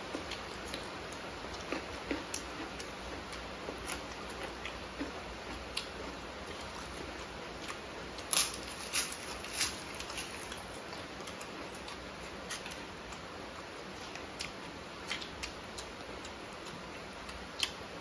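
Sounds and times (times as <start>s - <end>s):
soft chewing and mouth clicks: 0.0s - 18.0s
crisp food crunching: 0.1s - 13.2s.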